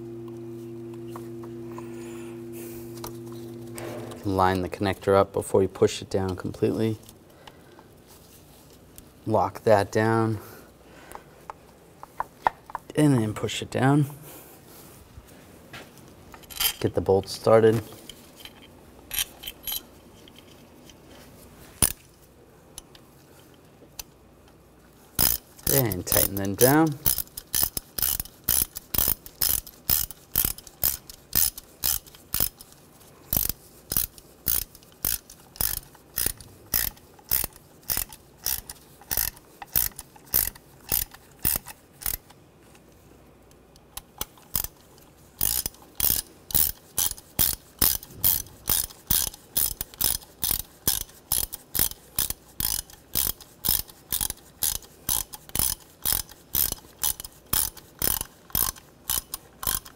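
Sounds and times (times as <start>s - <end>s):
hand ratchet clicking: 21.8s - 22.0s, 25.2s - 42.4s, 43.8s - 59.9s.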